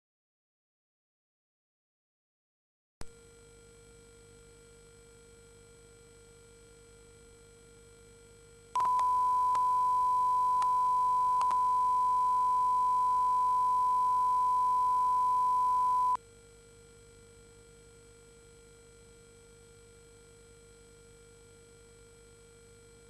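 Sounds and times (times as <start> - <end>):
faint steady hum: 3.0 - 16.2
single-pitch test tone: 8.8 - 16.2
faint clicks: 10.6 - 11.7.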